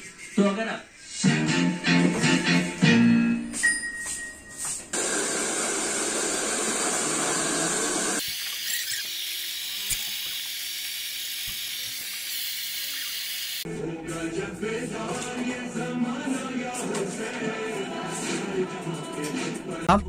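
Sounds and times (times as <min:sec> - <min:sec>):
hair dryer blowing air: 0:05.0 - 0:13.6.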